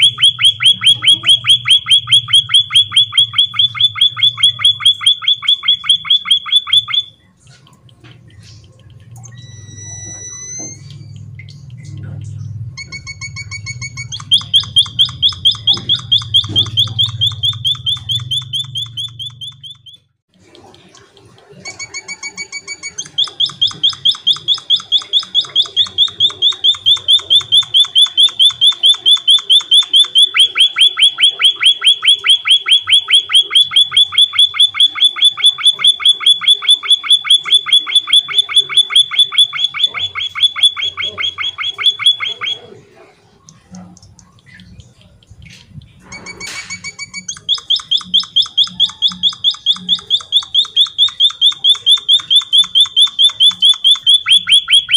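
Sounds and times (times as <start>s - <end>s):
bird trilling: 0.0s - 7.3s, 12.4s - 20.1s, 21.8s - 45.6s, 46.2s - 54.9s.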